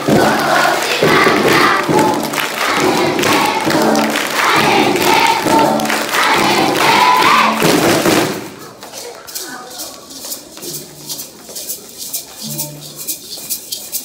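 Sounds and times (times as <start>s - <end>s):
children singing: 0.0s - 7.8s
hand clapping: 0.1s - 12.8s.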